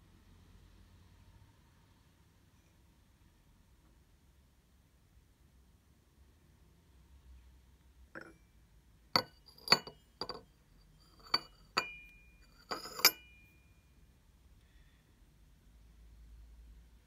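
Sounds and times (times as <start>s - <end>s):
porcelain teacup clinking on saucer: 8.2s - 8.4s, 9.2s - 13.4s.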